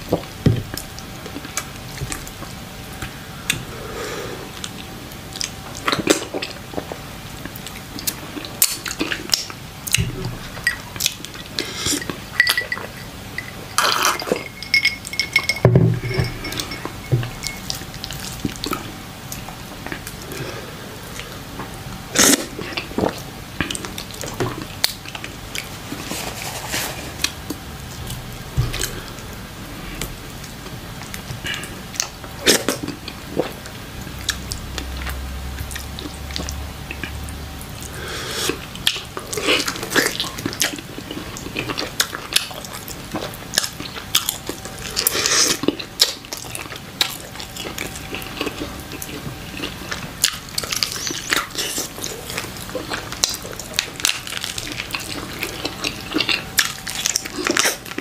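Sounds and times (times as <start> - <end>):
wet chewing and mouth noises: 4.5 - 15.6, 29.9 - 58.0.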